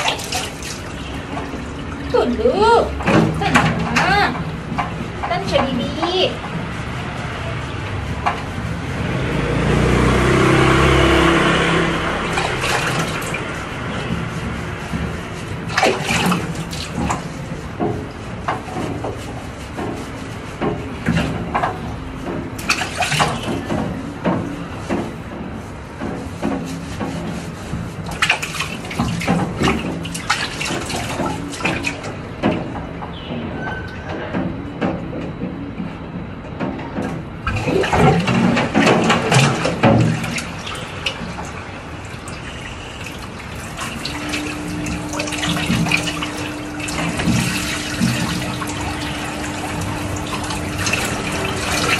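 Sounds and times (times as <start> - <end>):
water running from hose into sink: 0.0 - 4.4, 9.0 - 21.8, 26.3 - 32.1, 37.4 - 51.9
water splashing: 0.0 - 33.3, 37.4 - 51.9
passing motor vehicle engine: 6.6 - 15.5, 37.4 - 51.9.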